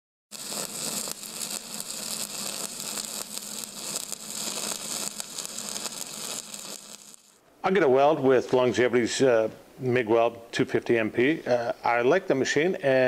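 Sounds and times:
welding arc crackling: 0.3s - 7.4s.

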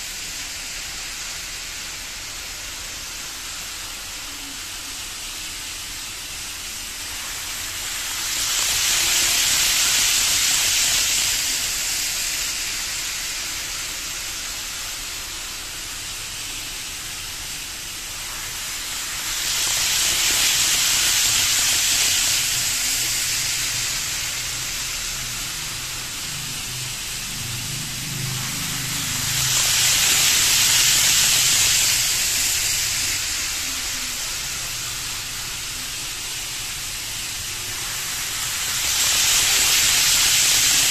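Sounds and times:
model train rushing past: 0.0s - 40.9s.

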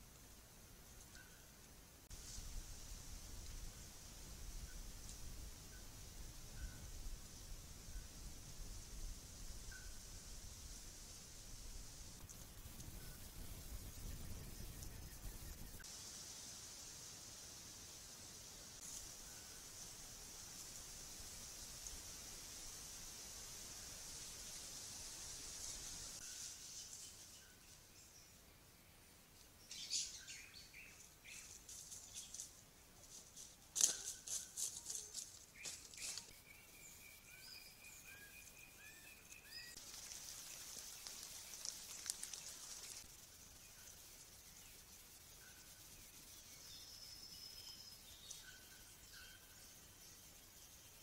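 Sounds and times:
high insect chorus: 1.1s - 29.0s, 29.6s - 51.0s
rustles in dry leaf litter: 15.8s - 27.8s, 31.2s - 36.3s, 39.4s - 47.0s
whistled calls: 35.6s - 39.8s.

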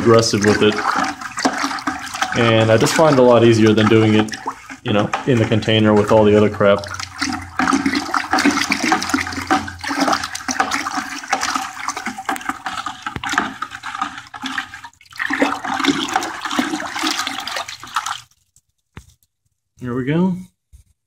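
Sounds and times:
water sloshing in a plastic bucket: 0.0s - 18.4s.

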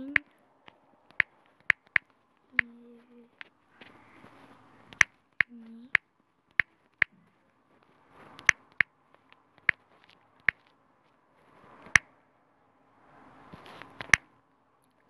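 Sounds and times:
phone keyboard clicks: 0.2s - 2.7s, 8.4s - 10.6s.

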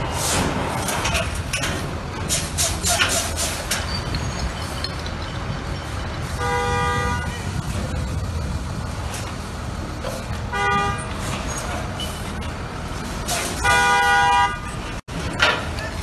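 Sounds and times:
garbage trucks dumping loads: 0.0s - 16.0s
low engine rumble: 0.0s - 16.0s
street noise: 0.0s - 16.0s
vehicle horn honking: 6.4s - 7.5s, 10.5s - 11.1s, 13.6s - 14.7s.

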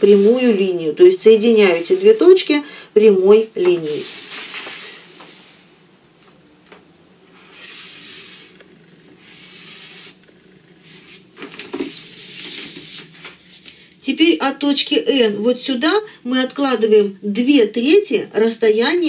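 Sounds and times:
marker drawing on paper: 7.4s - 8.5s, 9.2s - 10.2s, 10.8s - 13.1s
ruler sliding across paper: 7.4s - 8.6s, 9.2s - 10.2s, 11.8s - 13.6s.

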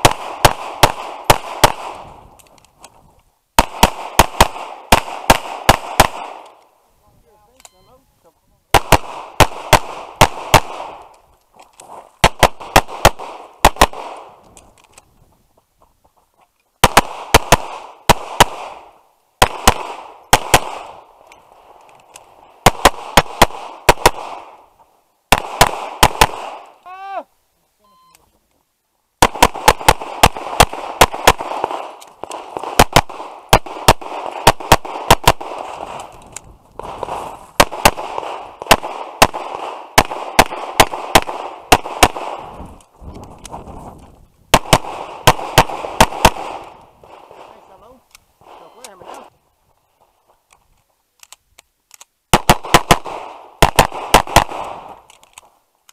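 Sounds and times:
pistol shots with echo: 0.0s - 2.2s, 3.6s - 6.6s, 8.7s - 11.1s, 12.2s - 14.4s, 16.8s - 21.1s, 22.6s - 24.6s, 25.3s - 26.7s, 29.2s - 35.9s, 36.8s - 42.5s, 44.5s - 46.8s, 52.3s - 55.0s.

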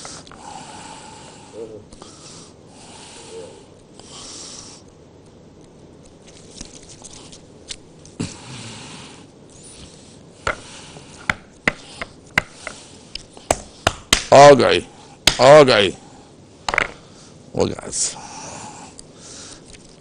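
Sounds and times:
soft handling noise: 19.0s - 20.0s.

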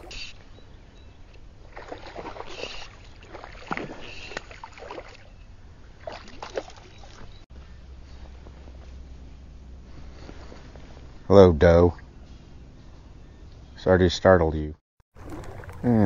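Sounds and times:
water splashing: 1.6s - 5.3s, 6.0s - 7.4s, 15.1s - 16.0s.

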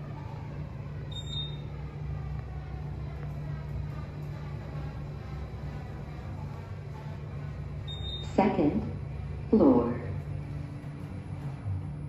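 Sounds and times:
elevator car humming: 0.0s - 12.0s
high beep: 1.1s - 1.6s, 7.9s - 8.4s.

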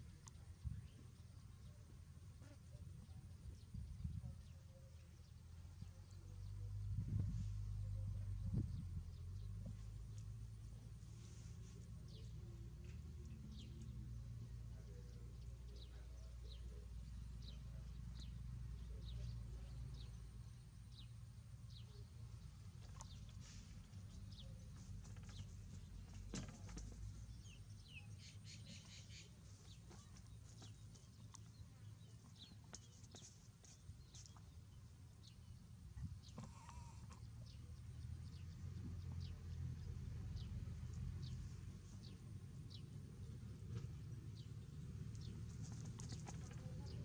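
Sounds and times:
low background rumble: 0.0s - 47.0s.

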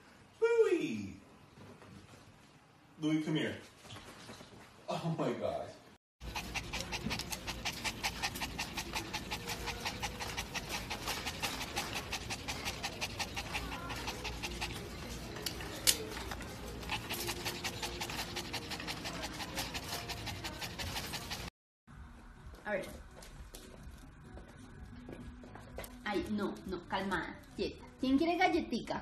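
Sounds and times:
dog panting: 6.2s - 21.5s.

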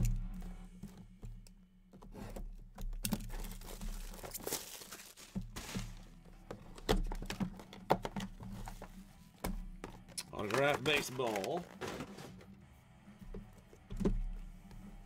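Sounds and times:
plastic crinkling: 3.0s - 9.0s, 9.9s - 12.5s
cardboard sliding and scraping: 3.2s - 6.1s, 10.4s - 12.6s.

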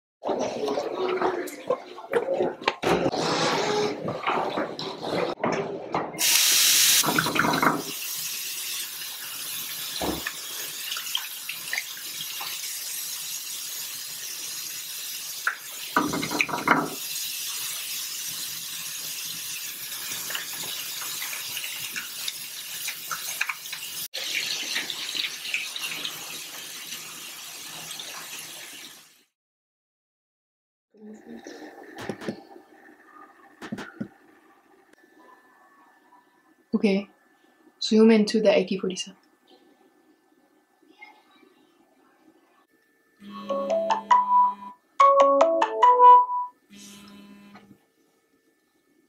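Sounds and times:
tap running into washbasin: 7.0s - 13.8s, 14.5s - 26.8s.

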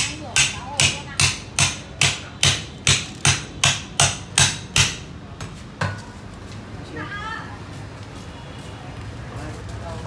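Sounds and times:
cleaver striking cleaver: 0.0s - 5.1s.

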